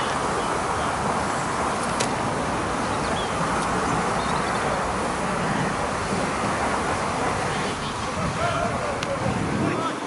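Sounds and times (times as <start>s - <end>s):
rushing outdoor background noise: 0.0s - 10.0s.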